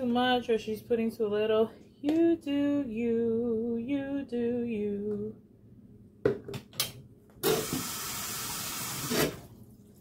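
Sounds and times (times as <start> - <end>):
kitchen tap running: 7.4 - 9.6.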